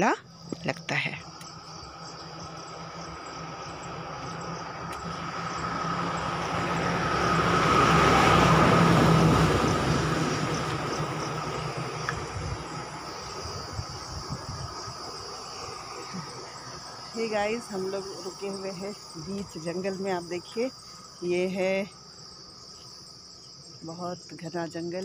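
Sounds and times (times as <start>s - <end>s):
insects buzzing: 0.0s - 25.0s
vehicle passing by: 1.6s - 21.2s.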